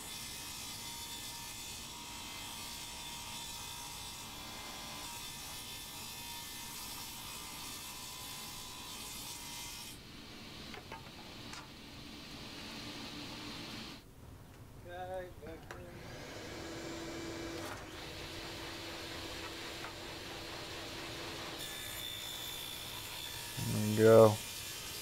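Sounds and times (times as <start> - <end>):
shop vacuum hissing: 11.8 - 14.0, 15.9 - 25.0
table saw whirring: 15.9 - 25.0.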